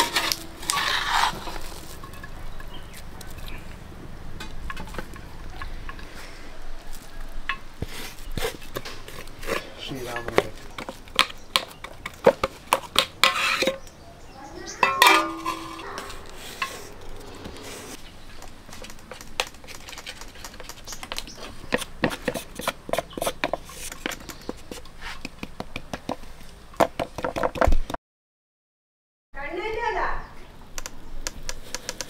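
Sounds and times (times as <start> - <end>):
steel plates clinking and scraping: 0.0 - 3.0, 13.2 - 13.8, 14.8 - 17.0
metal spatula scraping a plate: 13.2 - 13.8.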